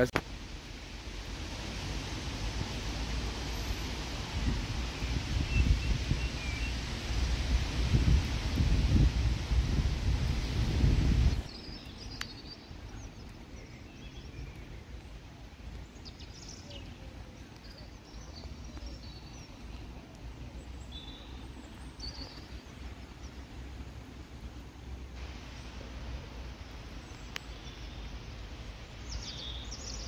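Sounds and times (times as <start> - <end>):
songbirds chirping: 0.9 - 8.2, 11.2 - 30.0.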